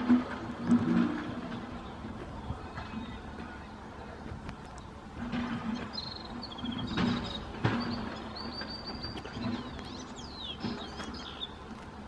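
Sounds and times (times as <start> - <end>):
construction work noise: 0.0 - 12.0
bird twittering song: 5.9 - 11.7.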